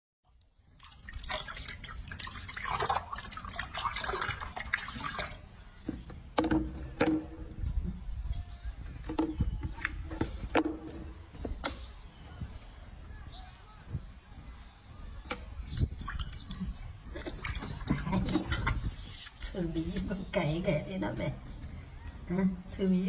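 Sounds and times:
water drips and plops: 0.3s - 5.5s, 15.8s - 18.9s
water splashing in sink: 0.7s - 5.5s, 15.9s - 19.0s.

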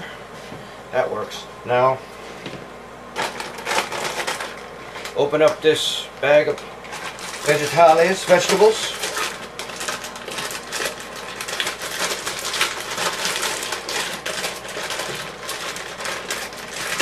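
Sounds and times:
plastic bag crinkling: 3.2s - 5.2s, 6.4s - 17.0s.

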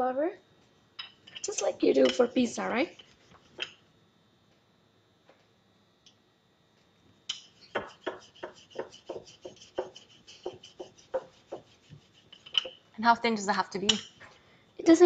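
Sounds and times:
rolling pin rolling dough: 7.3s - 12.9s.

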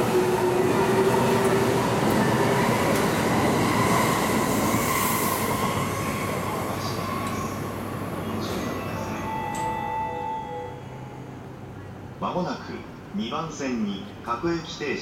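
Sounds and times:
wheels rumbling on rail: 0.0s - 10.0s.

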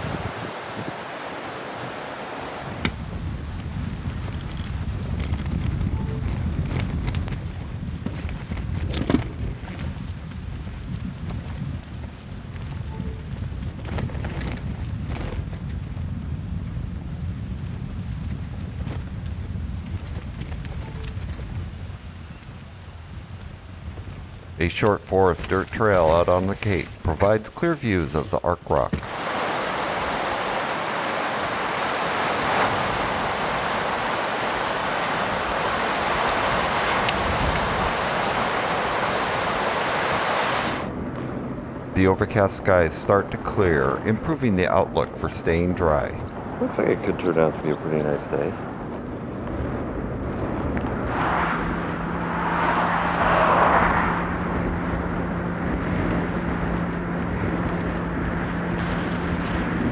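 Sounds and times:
ocean surf breaking on rocks: 0.0s - 3.4s, 24.6s - 40.9s
wind and road noise: 0.0s - 59.9s
truck passing: 48.9s - 59.9s.

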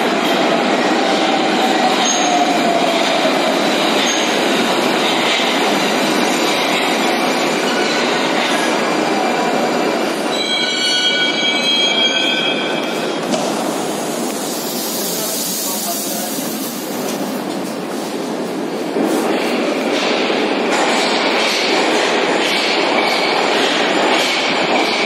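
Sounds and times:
train rumbling into station: 0.0s - 25.0s
train brakes squealing: 10.1s - 13.2s.

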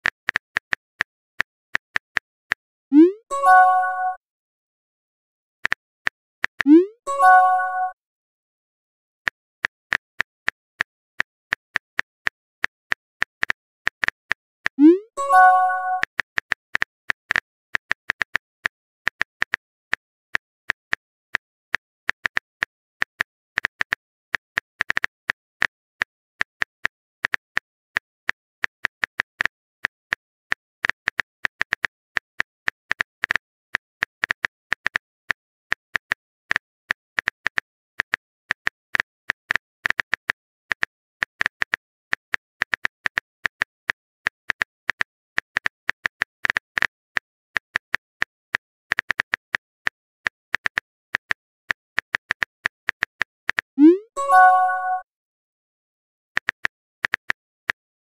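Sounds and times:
keyboard typing clicks: 3.0s - 4.2s, 6.5s - 8.0s, 14.8s - 16.5s, 53.0s - 55.0s.

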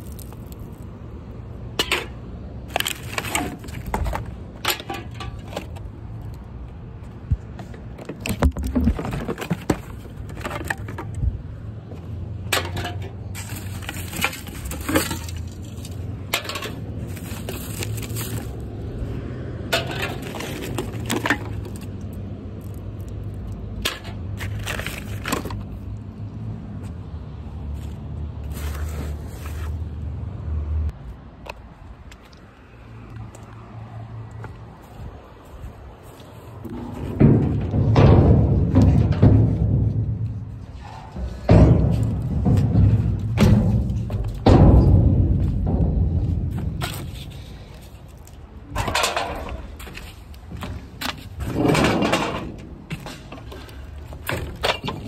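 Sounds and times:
bottles and cans clinking in trash: 12.5s - 18.6s, 48.7s - 49.7s.

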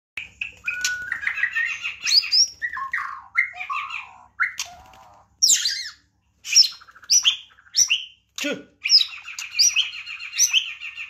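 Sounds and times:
bird singing whistled notes: 0.3s - 4.8s.

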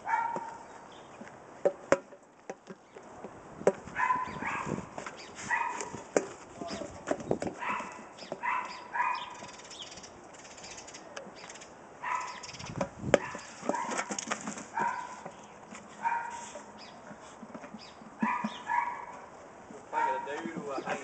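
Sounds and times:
dog barking: 0.0s - 0.6s, 4.0s - 4.8s, 5.5s - 6.0s, 7.6s - 9.4s, 12.0s - 12.4s, 13.2s - 14.1s, 14.7s - 15.2s, 16.0s - 16.5s, 18.2s - 19.3s, 19.9s - 20.3s
rubbery knocks and scuffs: 0.3s - 9.6s, 12.7s - 21.0s.

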